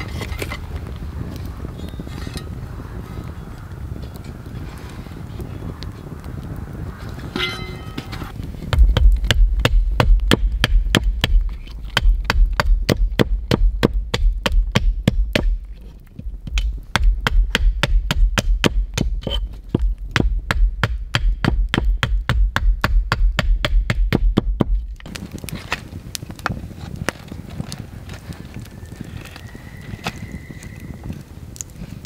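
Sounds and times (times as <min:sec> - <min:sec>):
hatchet chopping wood: 0:08.7 - 0:15.6, 0:16.4 - 0:24.8.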